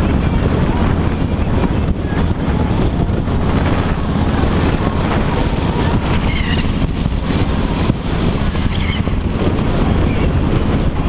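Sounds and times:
motorcycle engines rumbling: 0:00.0 - 0:11.0
wind buffeting microphone: 0:00.0 - 0:11.0.

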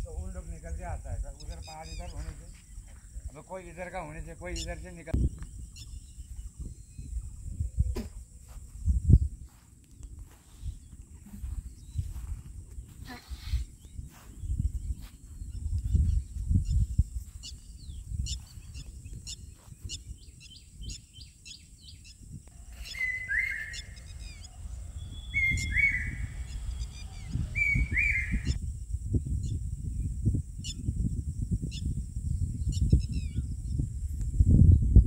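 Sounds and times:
birds chirping: 0:00.0 - 0:09.3, 0:10.3 - 0:28.6
bird two-part call: 0:22.6 - 0:28.6.

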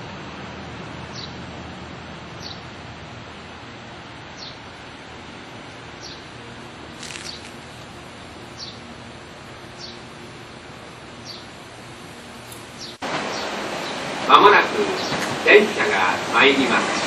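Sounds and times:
steady outdoor hiss: 0:00.0 - 0:17.0
bird chirping: 0:01.1 - 0:01.4, 0:02.4 - 0:02.7, 0:04.3 - 0:04.6, 0:06.0 - 0:06.3, 0:07.0 - 0:08.9, 0:09.6 - 0:10.1, 0:11.1 - 0:11.6, 0:12.5 - 0:14.0.

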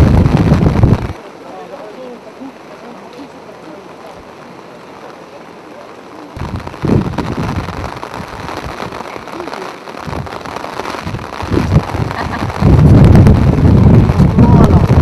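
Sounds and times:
wind rumbling on microphone: 0:00.0 - 0:01.2, 0:06.4 - 0:15.0
falling rain: 0:00.0 - 0:15.0.

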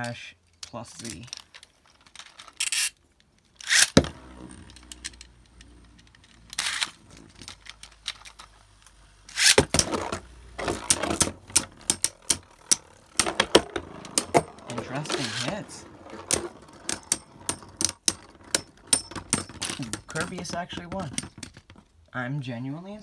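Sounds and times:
spinning tops clacking together: 0:03.6 - 0:05.8, 0:09.3 - 0:21.3
spinning top whirring: 0:03.6 - 0:07.3, 0:09.3 - 0:19.4.

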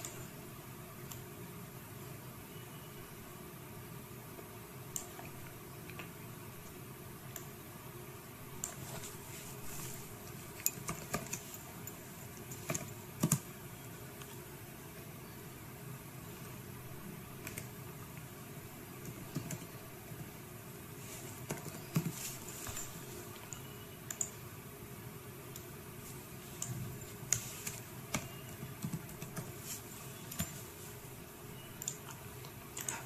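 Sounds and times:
keyboard typing: 0:08.6 - 0:09.1, 0:10.2 - 0:13.6, 0:17.4 - 0:18.3, 0:19.0 - 0:20.3, 0:21.2 - 0:24.4, 0:26.4 - 0:33.0.

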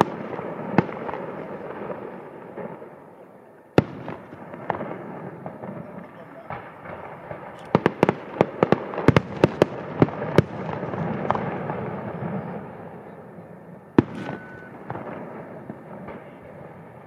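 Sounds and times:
fireworks rumble and crackle: 0:00.0 - 0:17.0
loud firework bang: 0:03.8 - 0:12.8, 0:13.9 - 0:16.9.

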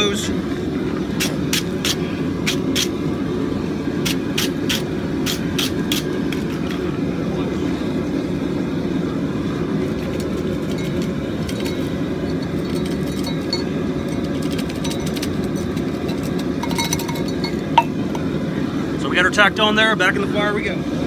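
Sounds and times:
forge fire roaring: 0:00.0 - 0:21.0
faint metal clinks: 0:16.6 - 0:17.9.

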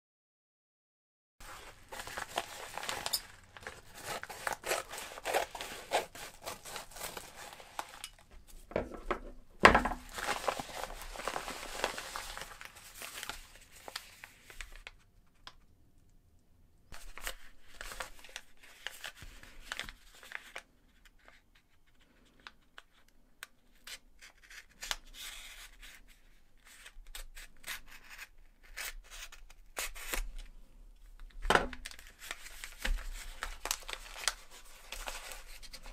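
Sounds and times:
paper rustling and crinkling: 0:01.4 - 0:15.4, 0:16.9 - 0:23.0, 0:31.2 - 0:35.9
scissors cutting paper mailer: 0:02.0 - 0:08.2.

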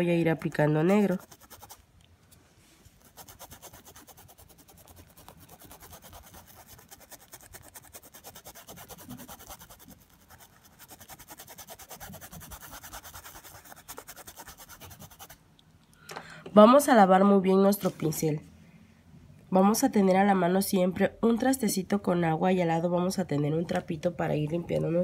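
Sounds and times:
paintbrush scratching on cloth: 0:00.8 - 0:01.8, 0:03.0 - 0:15.4.

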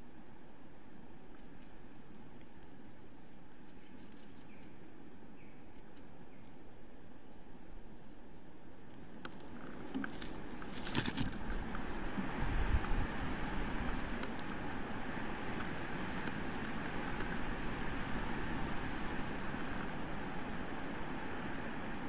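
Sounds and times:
wind rushing through trees: 0:04.4 - 0:22.0
brief crackle: 0:09.2 - 0:11.9
wind buffeting microphone: 0:10.4 - 0:22.0.

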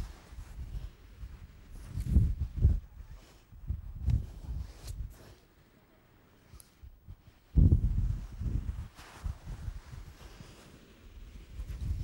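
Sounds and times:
wind buffeting microphone: 0:00.0 - 0:05.1, 0:07.5 - 0:10.2, 0:11.5 - 0:12.0.

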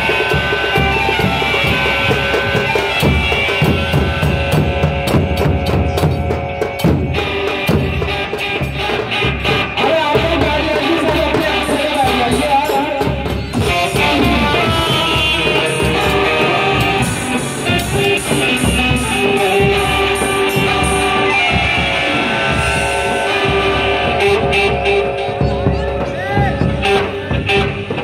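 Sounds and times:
frame drum and dhol drumming: 0:00.0 - 0:28.0
melody of sliding notes: 0:20.2 - 0:27.6.

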